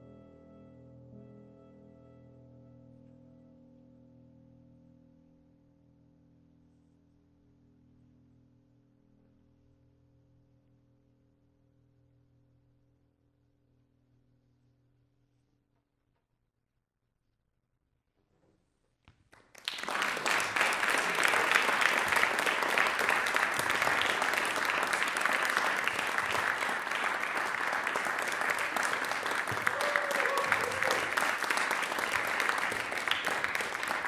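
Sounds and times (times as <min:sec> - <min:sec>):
audience applause: 0:19.4 - 0:34.0.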